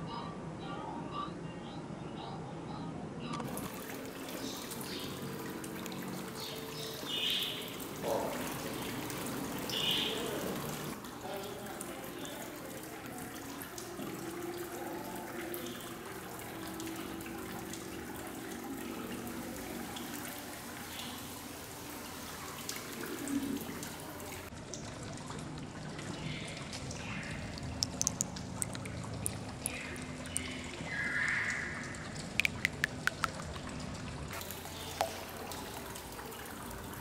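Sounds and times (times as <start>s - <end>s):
fountain trickling: 3.5s - 37.0s
sharp clicks: 27.6s - 28.9s, 32.4s - 33.5s.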